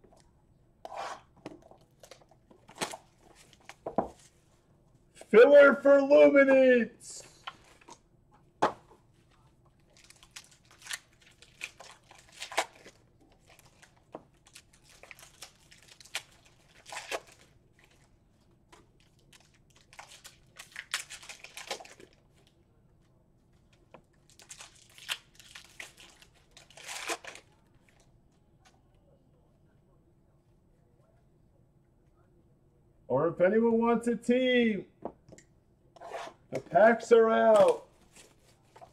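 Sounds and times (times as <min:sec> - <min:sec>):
card wrappers crinkling: 0:09.8 - 0:18.1, 0:18.8 - 0:22.6, 0:23.7 - 0:28.1, 0:37.4 - 0:38.9.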